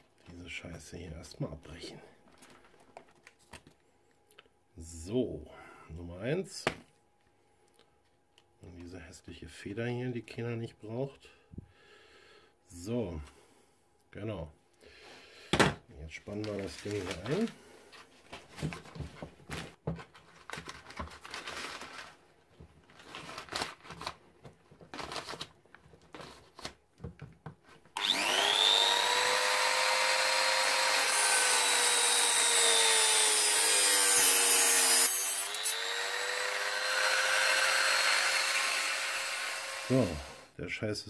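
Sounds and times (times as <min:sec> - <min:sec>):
rotary tool cutting whine: 0:28.0 - 0:40.5.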